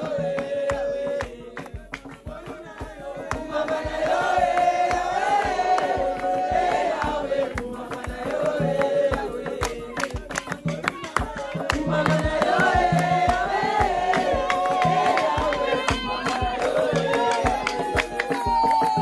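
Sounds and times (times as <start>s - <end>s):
steady low beat: 0.0s - 17.6s
hands clapping: 0.0s - 19.0s
woman singing: 7.8s - 19.0s.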